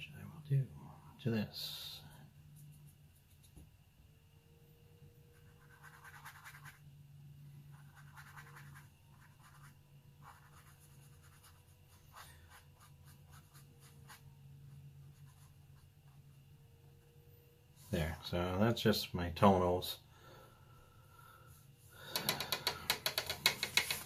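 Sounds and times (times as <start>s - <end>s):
low steady hum: 0.0s - 24.0s
brush scratching on paper: 5.3s - 6.8s, 7.7s - 14.4s, 15.0s - 15.9s.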